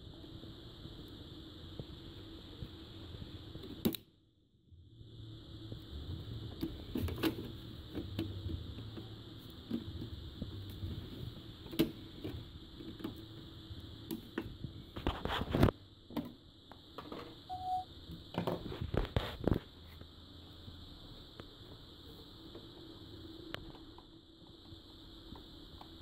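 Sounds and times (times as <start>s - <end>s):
high-pitched whine: 4.7s - 19.6s.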